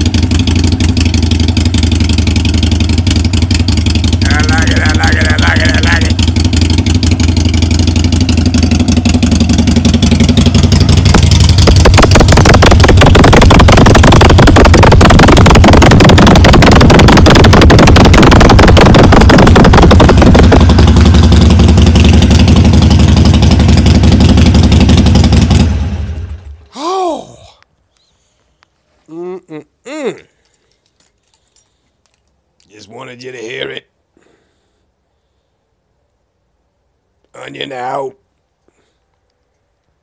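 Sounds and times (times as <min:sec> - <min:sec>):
motorcycle engine running: 0:00.0 - 0:26.6.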